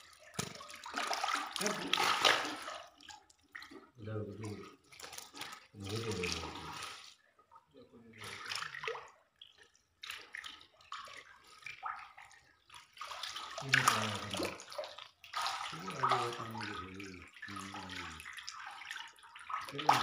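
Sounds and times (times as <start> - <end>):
fish thrashing in water: 0.0 - 7.2, 8.2 - 20.0
water splashing in a tank: 0.0 - 20.0
person speaking: 4.0 - 4.8, 5.8 - 6.8, 13.6 - 14.6, 15.7 - 18.2, 19.7 - 20.0.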